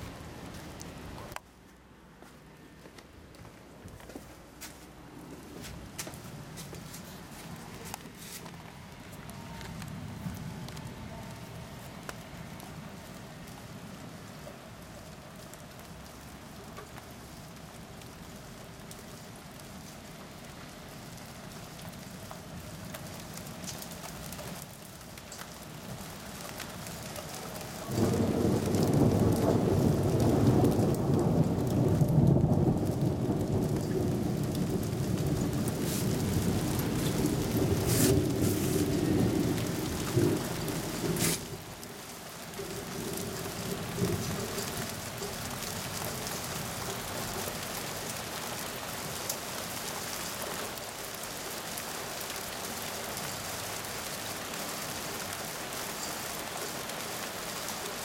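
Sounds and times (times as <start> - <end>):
steady hissing rain: 0.0 - 58.0
sharp crackles: 20.9 - 51.2
thunder rumbling: 27.6 - 47.7.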